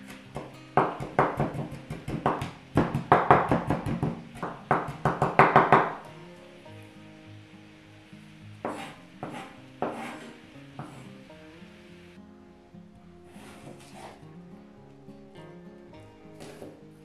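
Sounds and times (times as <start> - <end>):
background music: 0.0 - 17.0
knife chopping on wooden board: 0.1 - 6.0, 8.6 - 11.0.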